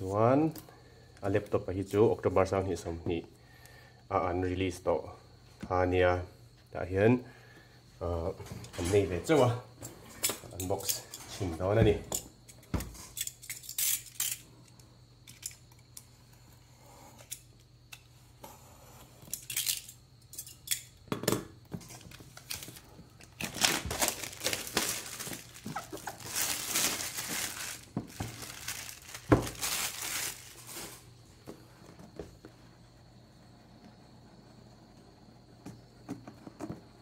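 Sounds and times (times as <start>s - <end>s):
plastic shrink-wrap crinkling: 21.9s - 31.1s.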